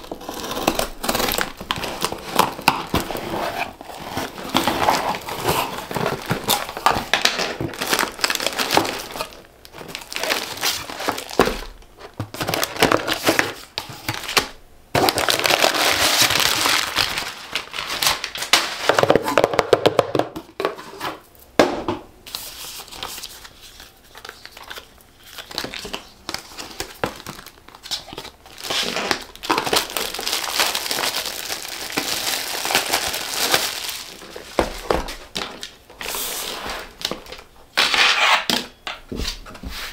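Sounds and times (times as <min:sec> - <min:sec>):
cellophane crinkling: 0:00.0 - 0:19.6, 0:22.3 - 0:37.5
cardboard box rustling: 0:00.2 - 0:14.4.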